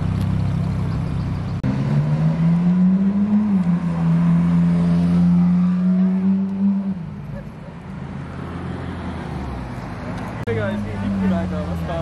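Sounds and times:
sports car engine pulling away: 0.0 - 7.3.

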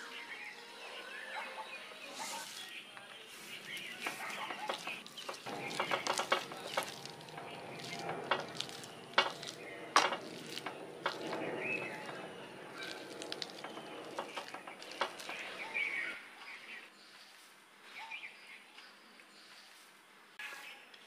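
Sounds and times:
stirring and scraping: 2.1 - 16.2.

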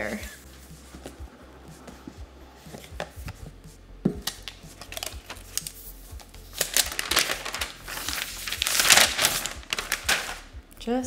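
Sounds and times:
paper rustling and crinkling: 4.4 - 10.5.

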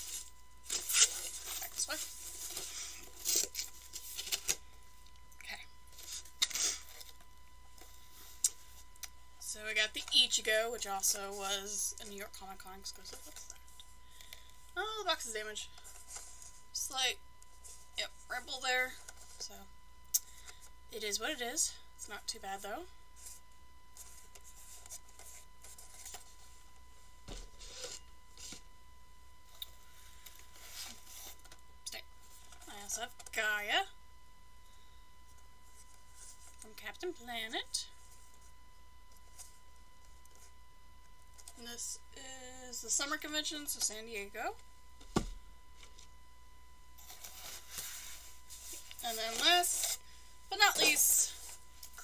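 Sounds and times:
cardboard rustling and scraping: 0.0 - 4.7, 15.2 - 16.7, 23.2 - 28.7, 29.9 - 31.6, 47.0 - 52.0
faint steady tone: 0.0 - 52.0.

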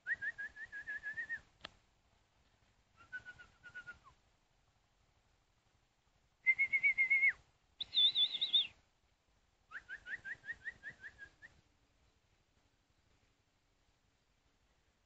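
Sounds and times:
bird whistling calls: 6.5 - 8.8.

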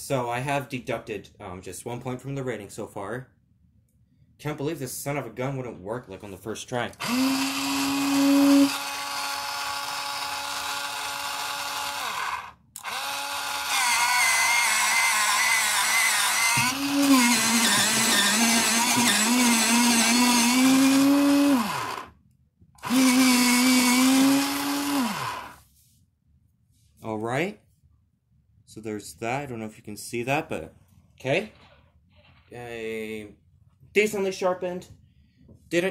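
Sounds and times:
electric pencil sharpener humming: 7.0 - 22.1, 22.8 - 25.6.

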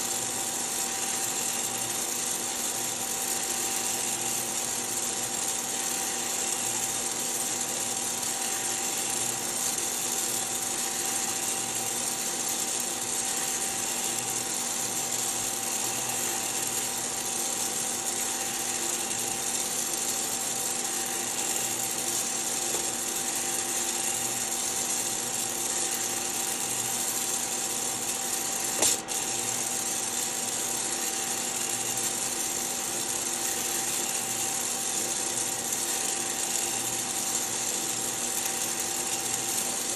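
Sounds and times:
cooling fan and motor hum: 0.0 - 39.9
sharp click: 28.8 - 29.1.

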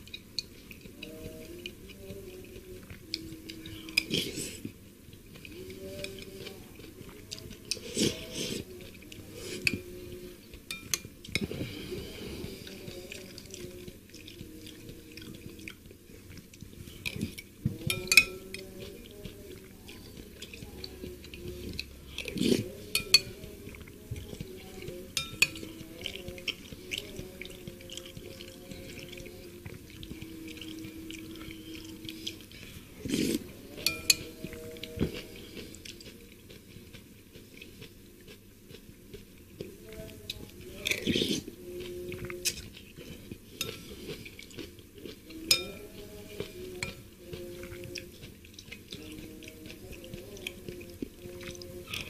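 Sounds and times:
chewing: 0.0 - 52.0
spoon clinking against bowl: 10.7 - 11.5, 17.8 - 18.9, 22.9 - 23.4, 25.1 - 26.6, 33.8 - 34.9, 45.4 - 45.9
slurping: 24.4 - 37.9.

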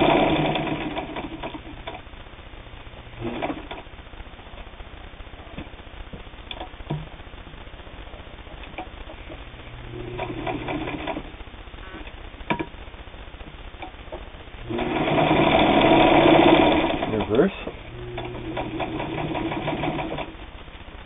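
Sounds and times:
sewing machine stitching: 0.0 - 1.7, 3.2 - 3.8, 10.1 - 11.3, 14.7 - 20.4.

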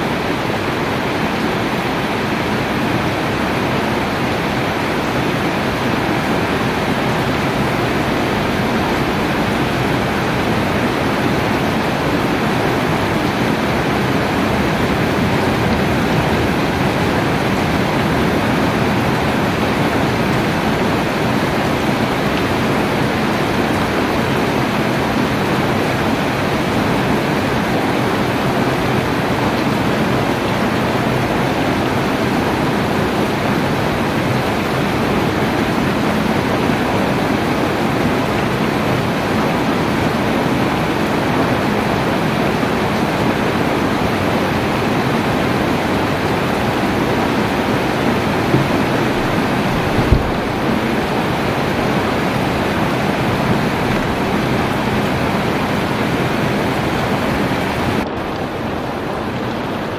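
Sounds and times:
heavy rain falling: 0.0 - 59.9.

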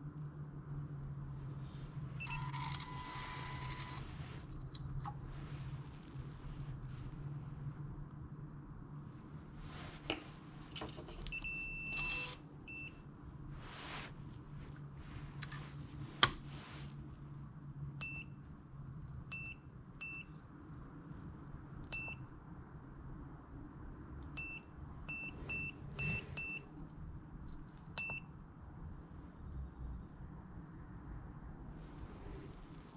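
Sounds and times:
short key-press beeps: 28.0 - 28.3.

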